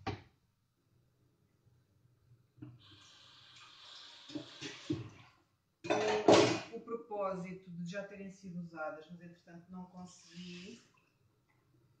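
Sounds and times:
running water hiss: 0:02.8 - 0:05.2, 0:10.0 - 0:11.0.

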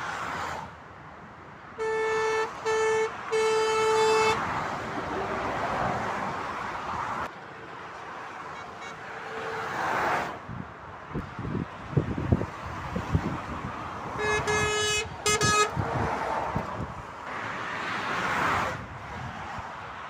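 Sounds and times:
motorway traffic passing: 0:00.0 - 0:20.0
truck horn blasts: 0:01.8 - 0:04.5, 0:08.5 - 0:09.8, 0:14.2 - 0:15.8.

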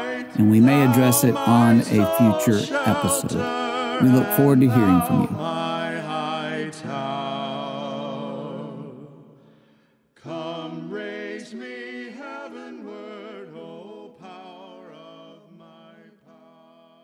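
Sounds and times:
a cappella voices singing: 0:00.0 - 0:17.0.

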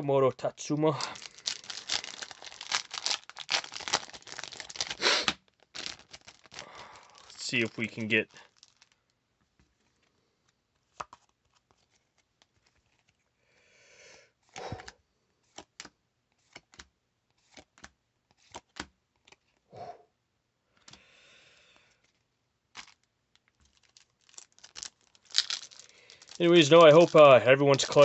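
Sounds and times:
cards rustling: 0:00.9 - 0:09.0, 0:10.7 - 0:13.2, 0:14.4 - 0:19.6, 0:21.8 - 0:28.0
cards clicking and tapping: 0:14.5 - 0:19.6.

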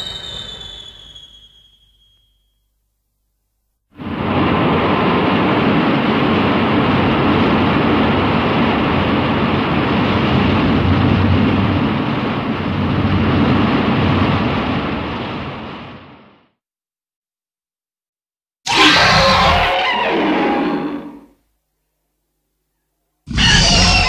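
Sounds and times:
loud rushing noise: 0:00.0 - 0:01.0.

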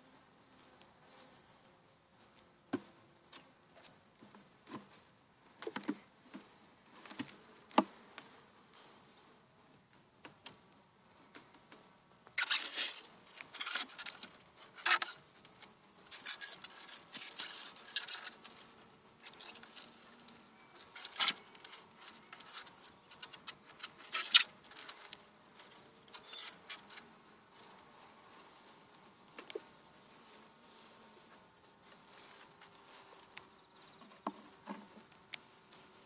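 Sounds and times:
honeybees buzzing faintly: 0:00.0 - 0:36.0
hive tool scraping wooden frames: 0:12.4 - 0:27.9, 0:30.4 - 0:36.0.

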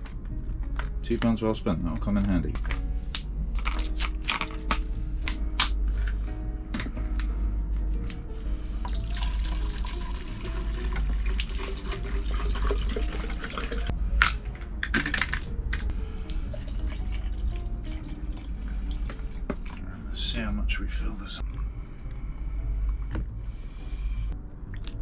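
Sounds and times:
background music: 0:00.0 - 0:25.0
liquid pouring into plastic container: 0:08.9 - 0:13.9.

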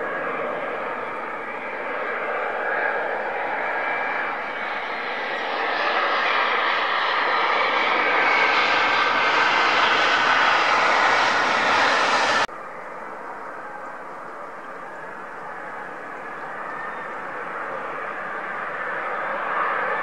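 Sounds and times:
jet engines running hard: 0:00.0 - 0:12.5
airliner jet noise on approach: 0:00.0 - 0:20.0.

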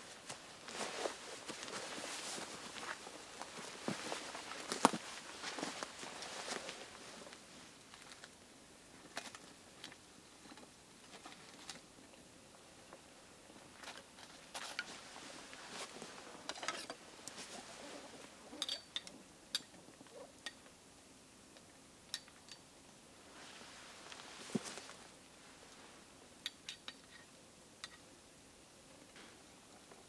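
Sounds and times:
dry leaves rustling: 0:00.0 - 0:07.6, 0:23.3 - 0:26.0.

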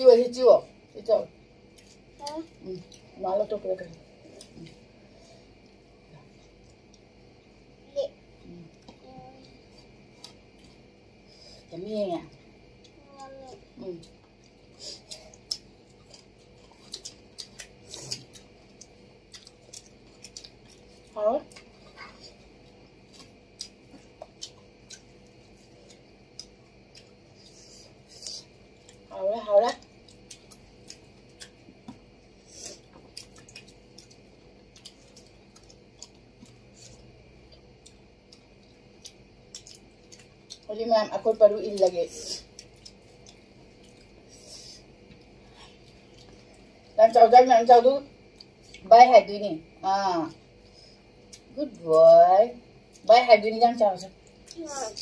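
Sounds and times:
person chewing: 0:14.0 - 0:29.1, 0:29.8 - 0:40.7, 0:41.6 - 0:46.8.

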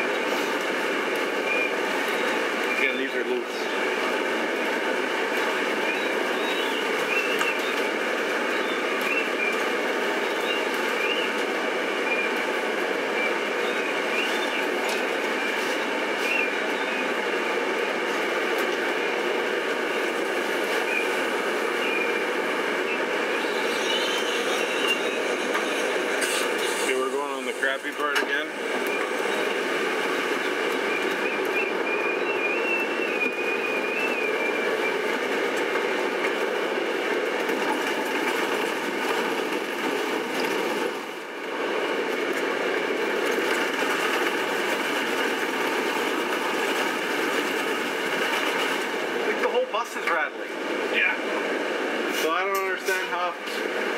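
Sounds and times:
bus running noise: 0:00.0 - 0:53.9.

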